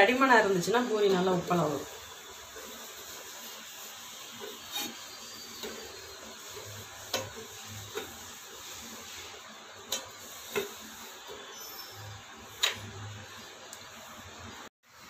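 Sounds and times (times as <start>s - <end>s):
rolling pin rolling dough: 0.2s - 14.3s.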